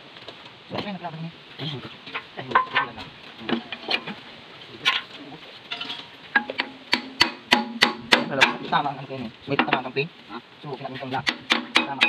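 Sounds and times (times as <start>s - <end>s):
hand tools knocking on metal pin: 5.7s - 8.7s, 11.2s - 12.0s.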